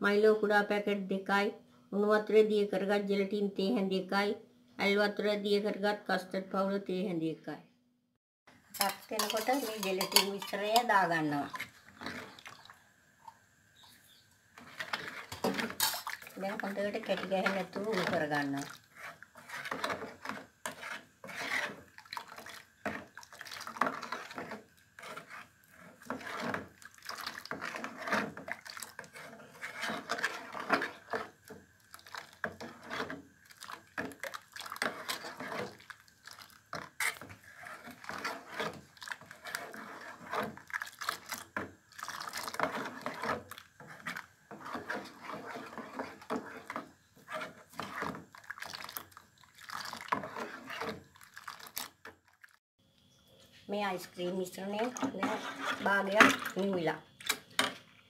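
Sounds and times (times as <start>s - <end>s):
spoon scraping metal pot: 8.7s - 12.8s, 13.8s - 51.9s, 53.9s - 57.8s
liquid swishing and sloshing: 9.2s - 13.9s, 14.5s - 52.6s, 54.6s - 57.4s.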